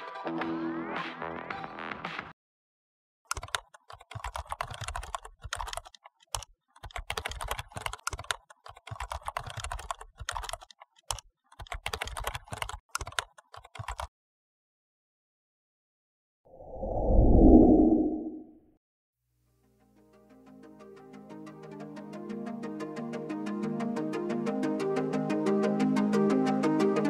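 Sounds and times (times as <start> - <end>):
keyboard typing: 3.3 - 14.1.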